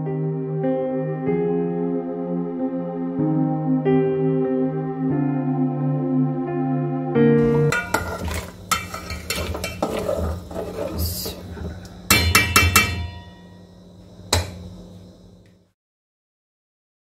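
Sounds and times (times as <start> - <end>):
metal spatula scraping a pot: 7.4 - 13.2
spatula tapping pot: 7.7 - 10.3, 12.1 - 13.5.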